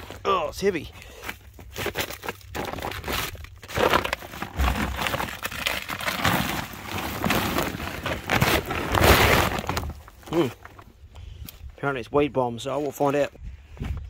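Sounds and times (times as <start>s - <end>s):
sack rustling: 1.7s - 10.8s
manure tumbling out: 1.7s - 10.9s.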